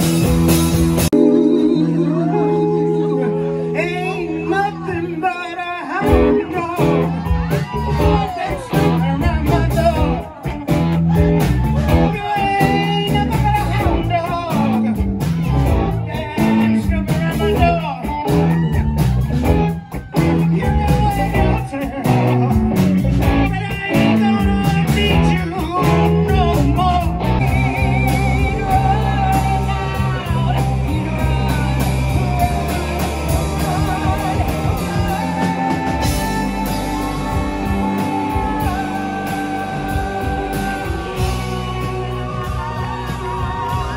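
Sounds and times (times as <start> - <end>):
drum kit: 0.0 - 1.8, 6.0 - 43.9
bass guitar: 0.0 - 43.9
electric guitars: 0.0 - 43.9
person singing into a microphone: 1.2 - 10.5, 23.2 - 43.9.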